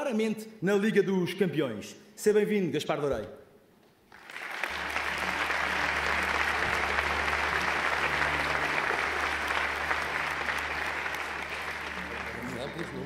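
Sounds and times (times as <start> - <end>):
audience applauding: 4.1 - 13.0.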